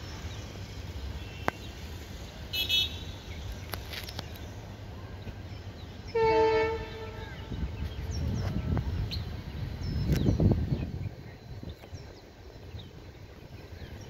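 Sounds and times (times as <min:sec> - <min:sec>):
locomotive horn blast: 0:06.1 - 0:07.6.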